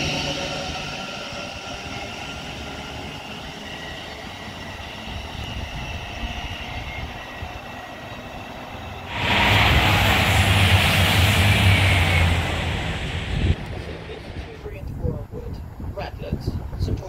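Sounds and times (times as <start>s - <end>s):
electric train motor whine: 0.0s - 14.7s
wheel and rail rumble: 0.0s - 17.0s
loud rushing noise: 9.0s - 15.0s.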